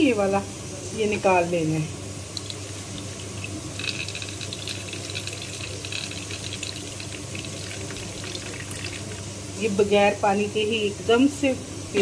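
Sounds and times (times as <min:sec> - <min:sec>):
water trickling and splashing: 0:02.4 - 0:09.2.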